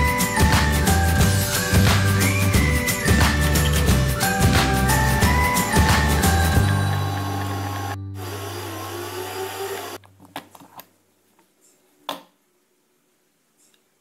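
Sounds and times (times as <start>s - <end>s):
electric mixer motor humming: 5.9s - 10.0s.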